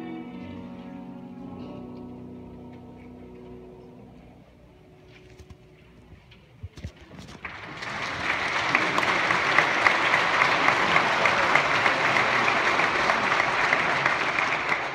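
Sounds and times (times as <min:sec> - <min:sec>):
congregation applauding: 0:07.3 - 0:14.9.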